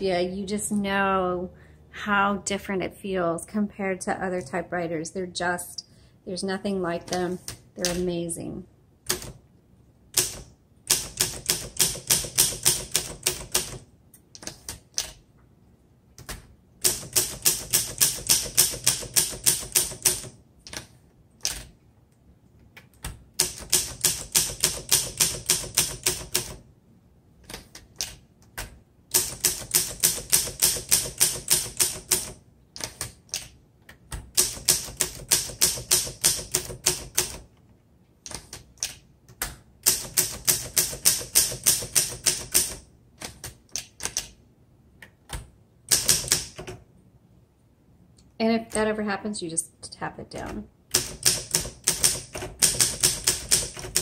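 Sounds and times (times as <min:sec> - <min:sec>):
typewriter keys striking: 0:10.1 - 0:15.2, 0:16.2 - 0:21.7, 0:22.9 - 0:26.6, 0:27.4 - 0:37.5, 0:38.3 - 0:44.4, 0:45.3 - 0:46.8, 0:50.9 - 0:54.0.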